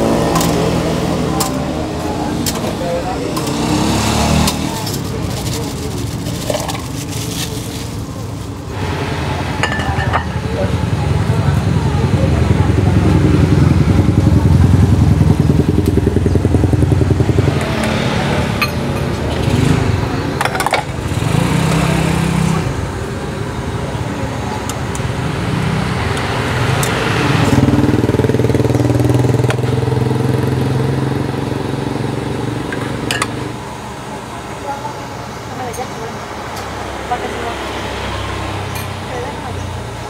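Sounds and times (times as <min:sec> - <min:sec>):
motorcycle engines: 0:00.0 - 0:40.0
cutlery clinking on china bowls: 0:09.6 - 0:10.4.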